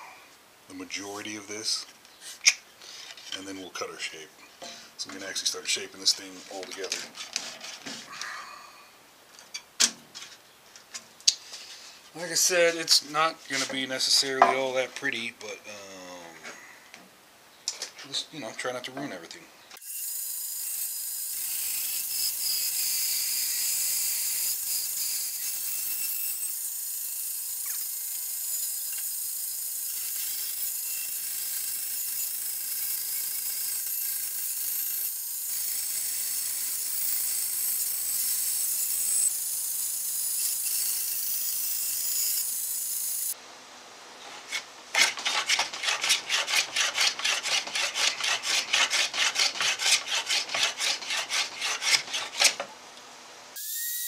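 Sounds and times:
bandsaw cutting wood: 0:19.8 - 0:43.4, 0:44.5 - 0:52.7
hand plane shaving wood: 0:44.5 - 0:52.7.

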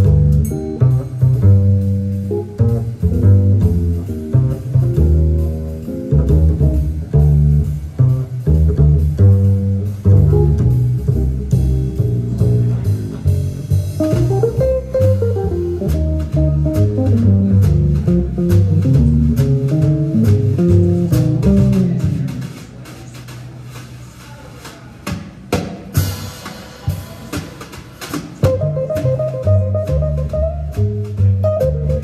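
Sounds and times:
walking upright bass: 0:00.0 - 0:24.1, 0:28.4 - 0:32.0
drum kit: 0:00.0 - 0:32.0
electric guitar melody: 0:28.5 - 0:30.8.

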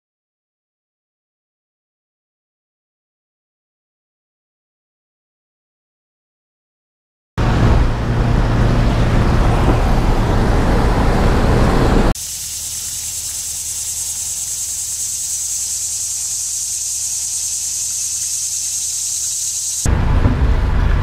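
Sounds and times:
rough rushing noise with deep rumble: 0:07.4 - 0:12.2, 0:16.2 - 0:21.0
insects buzzing: 0:12.2 - 0:19.9.

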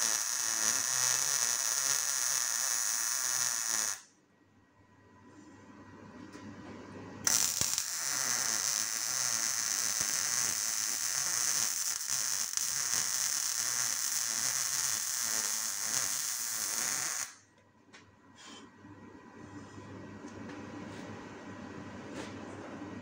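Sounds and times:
welding arc crackling: 0:00.0 - 0:04.0, 0:07.2 - 0:17.4.

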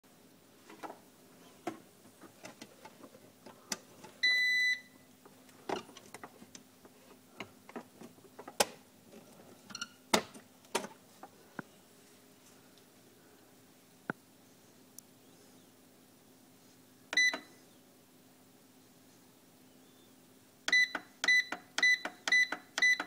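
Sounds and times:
handling clicks and knocks: 0:01.6 - 0:04.2, 0:07.4 - 0:11.0.

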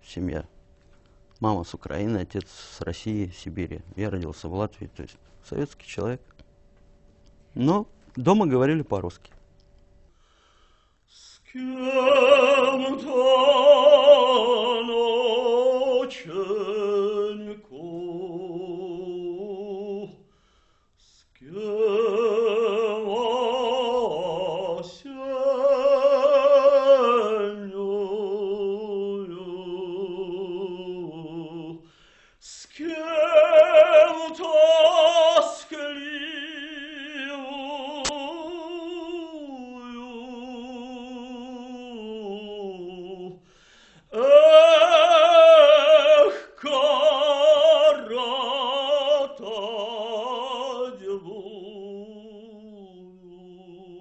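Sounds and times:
operatic solo voice singing: 0:11.4 - 0:20.2, 0:21.4 - 0:43.4, 0:44.1 - 0:54.0.

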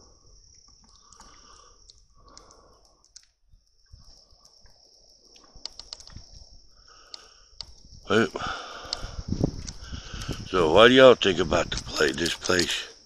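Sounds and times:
crickets trilling: 0:00.0 - 0:13.0
light clicks: 0:00.5 - 0:03.4, 0:04.0 - 0:06.4, 0:07.0 - 0:07.9, 0:08.8 - 0:10.5, 0:11.6 - 0:12.8.

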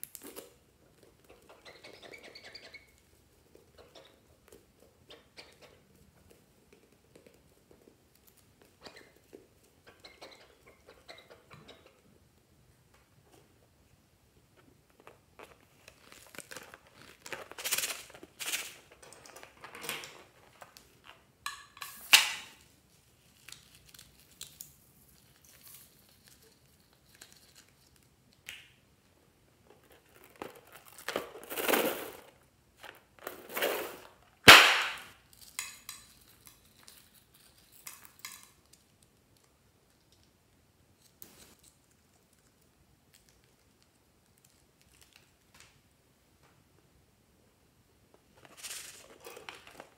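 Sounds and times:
balloon crinkling and rustling: 0:14.6 - 0:21.3
loud sharp snap: 0:34.4 - 0:35.2.

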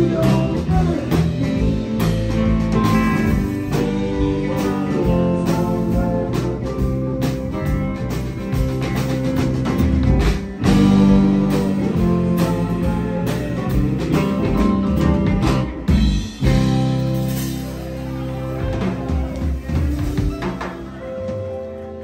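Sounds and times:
live rock band playing: 0:00.0 - 0:22.0.

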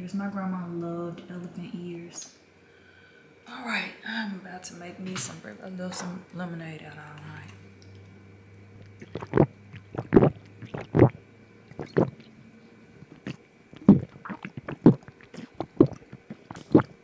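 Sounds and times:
slurping through a straw: 0:09.0 - 0:12.3, 0:13.0 - 0:17.0.

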